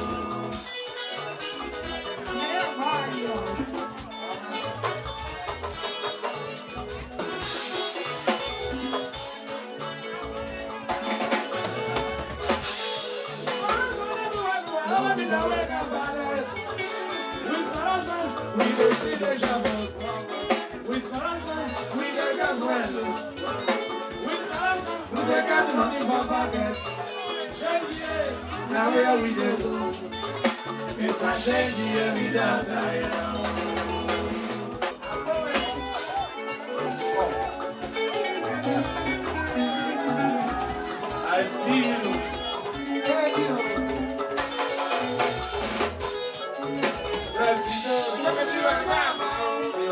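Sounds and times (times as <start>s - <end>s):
drum kit and percussion: 0.0s - 49.9s
electric guitar melody: 0.0s - 49.9s
live band music: 0.0s - 49.9s
man singing: 14.7s - 16.7s, 17.4s - 37.5s, 38.1s - 45.4s, 46.8s - 49.9s.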